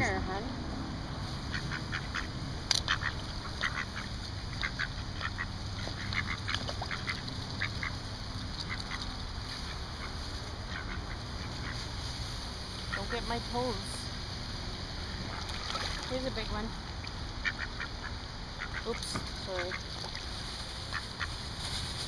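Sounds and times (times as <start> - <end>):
ducks quacking: 1.4 - 12.1, 12.7 - 14.0, 16.1 - 21.5.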